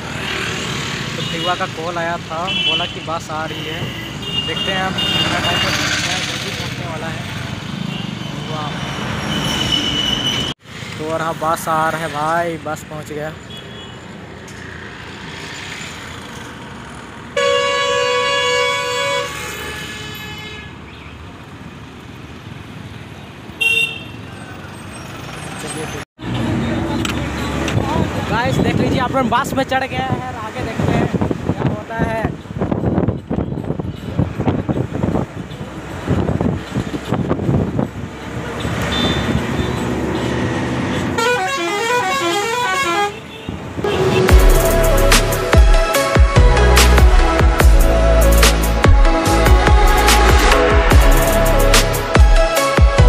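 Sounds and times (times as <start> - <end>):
traffic hum: 0.0 - 53.0
vehicle horn blasts: 2.4 - 5.8, 17.4 - 20.7, 23.6 - 24.2, 38.9 - 39.7, 41.1 - 44.8
bus driving: 21.1 - 29.1, 33.7 - 53.0
wind and road rumble: 24.7 - 41.2, 43.3 - 45.6.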